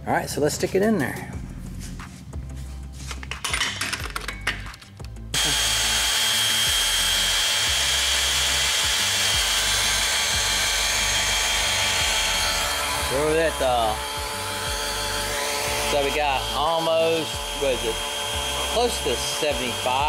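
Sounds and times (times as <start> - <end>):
cordless drill whining: 5.4 - 20.0.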